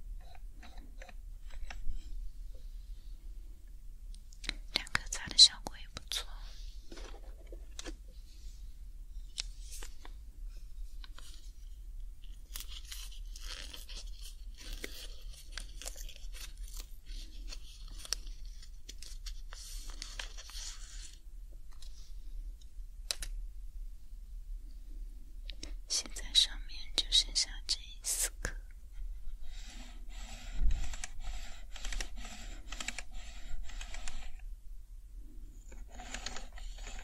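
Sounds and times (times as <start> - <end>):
small keyboard clicks: 30.7 - 34.3.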